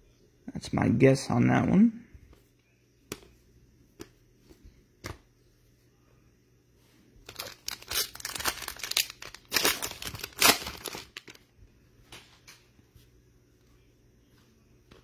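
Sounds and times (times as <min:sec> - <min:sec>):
foil wrapper crinkling: 0:07.2 - 0:11.4.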